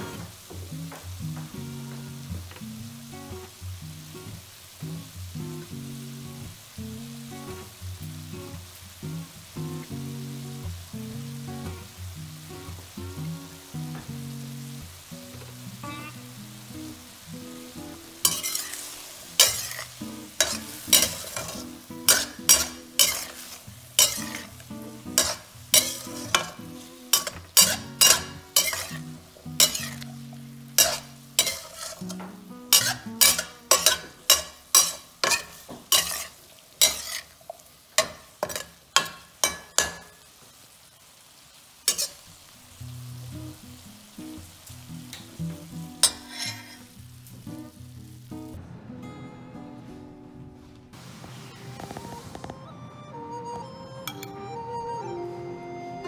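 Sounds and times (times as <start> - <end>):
food sizzling in frying pan: 0.0 - 56.0
metal spatula scraping pan: 18.2 - 24.6, 25.2 - 30.2, 30.8 - 37.4, 38.0 - 40.1, 41.9 - 42.2, 46.0 - 47.0.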